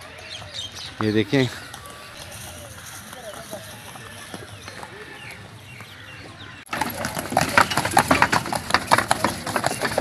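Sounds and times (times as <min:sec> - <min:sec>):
outdoor background noise: 0:00.0 - 0:10.0
hooves clip-clopping on bricks: 0:01.7 - 0:06.0, 0:06.7 - 0:10.0
carriage rattling: 0:06.7 - 0:10.0.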